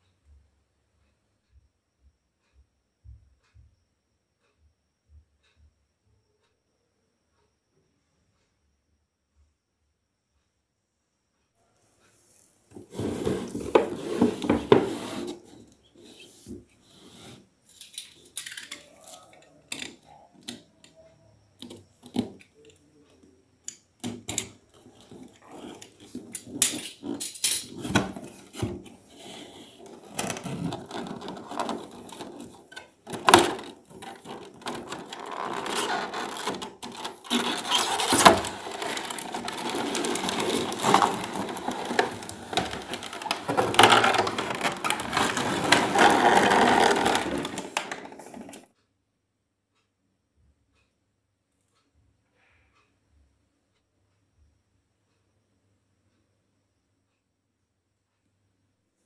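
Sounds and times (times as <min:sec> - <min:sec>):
plastic packaging crinkling: 0:29.2 - 0:48.6.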